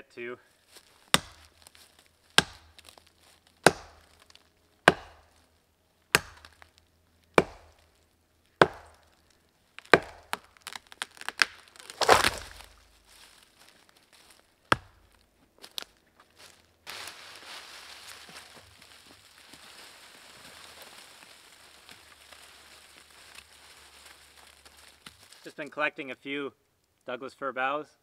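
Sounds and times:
machete chopping wood: 1.1s - 1.6s, 2.4s - 2.9s, 3.6s - 4.2s, 4.9s - 5.4s, 6.1s - 6.7s, 7.4s - 7.8s, 8.6s - 9.1s, 9.8s - 12.8s, 14.7s - 15.1s
tree falling with rustling crash: 9.8s - 14.4s, 16.9s - 25.5s.

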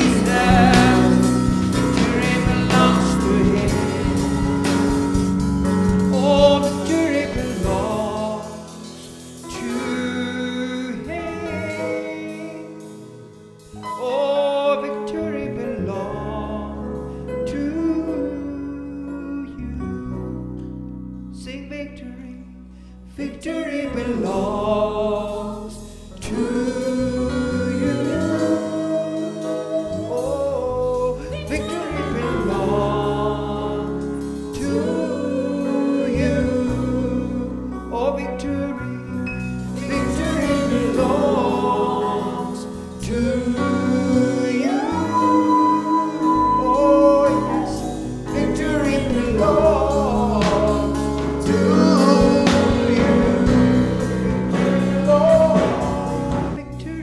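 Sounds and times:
man singing into a microphone: 0.0s - 4.6s, 6.1s - 13.0s, 13.8s - 20.1s, 21.4s - 22.5s, 23.1s - 39.2s, 39.8s - 57.0s
band playing: 0.0s - 14.6s, 24.4s - 37.9s, 39.3s - 56.8s
electronic keyboard: 0.0s - 21.3s.

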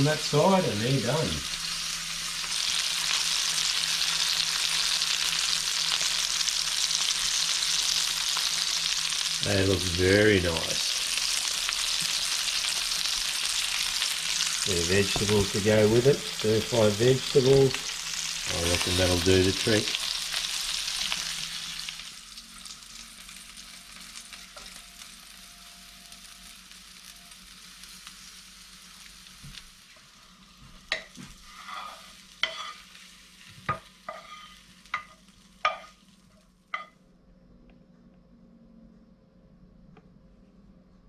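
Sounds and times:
fish fillets sizzling in oil: 0.0s - 36.9s.

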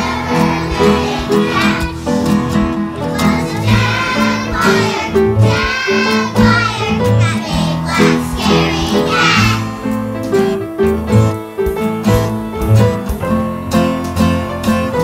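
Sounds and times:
children singing: 0.0s - 2.1s, 3.0s - 9.7s
instrumental backing of bass and chords: 0.0s - 15.0s.

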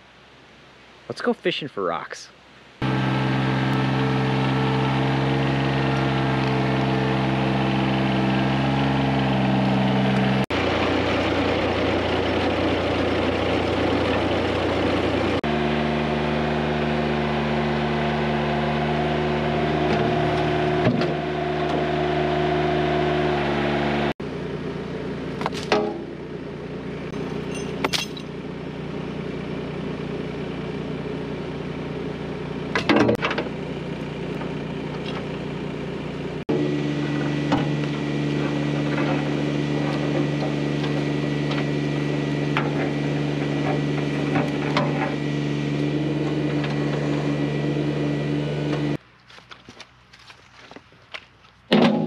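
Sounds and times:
tractor engine running: 2.8s - 52.0s
faint small clinks: 27.2s - 28.3s.

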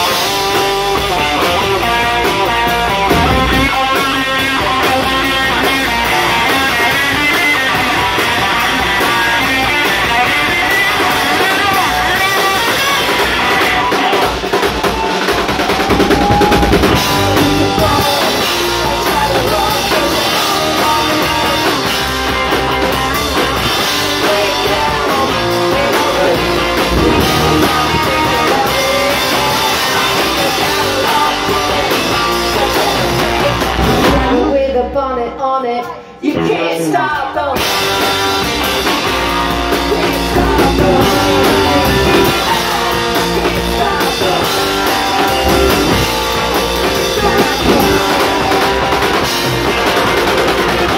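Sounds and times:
drum kit: 0.0s - 34.4s, 37.6s - 50.9s
electric guitars: 0.0s - 34.5s, 36.3s - 50.9s
women singing: 24.3s - 33.5s, 34.3s - 37.6s, 47.0s - 48.8s.

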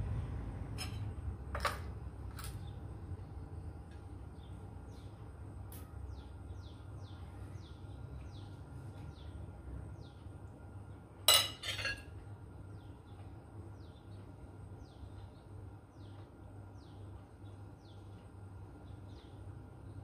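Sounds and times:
low hum: 0.0s - 20.0s
metal spoon clinking on dish: 11.3s - 12.1s.

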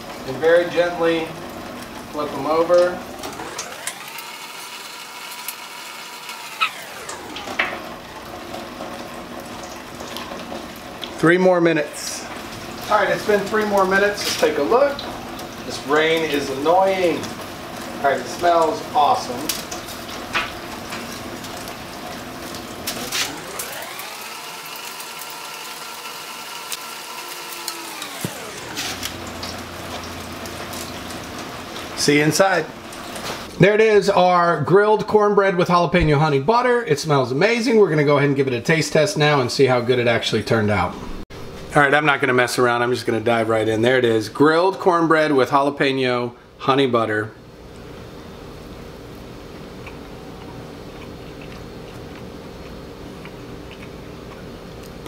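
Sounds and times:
rain patter: 0.0s - 4.3s, 7.0s - 24.0s, 28.3s - 33.6s
motor whine: 2.7s - 9.5s, 21.2s - 31.9s.

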